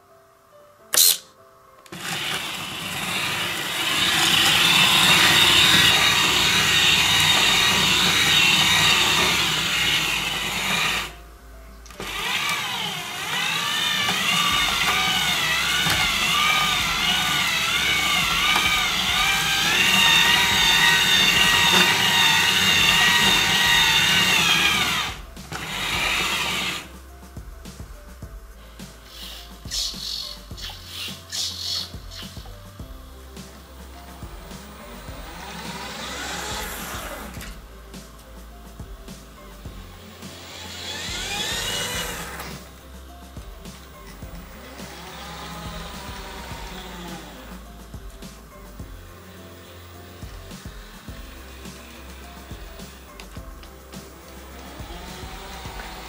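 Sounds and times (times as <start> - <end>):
electric gear motor whine: 1.9 - 11.2, 11.9 - 26.9, 34.2 - 37.6, 39.9 - 42.6, 44.1 - 47.6.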